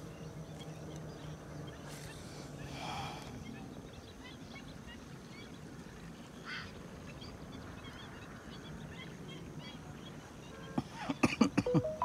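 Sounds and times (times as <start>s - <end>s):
low background noise: 0.0s - 12.0s
bird chirps: 11.7s - 12.0s.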